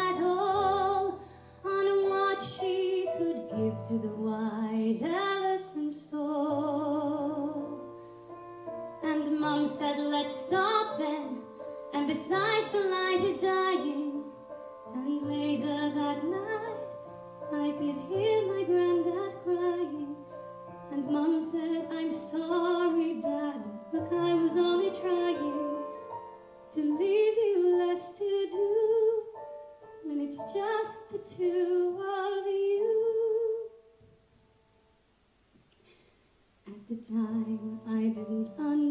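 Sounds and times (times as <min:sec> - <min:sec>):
woman singing with vibrato: 0:00.0 - 0:07.8, 0:09.0 - 0:16.9, 0:17.5 - 0:20.3, 0:20.9 - 0:25.9, 0:26.7 - 0:29.4, 0:30.0 - 0:33.8, 0:36.7 - 0:38.9.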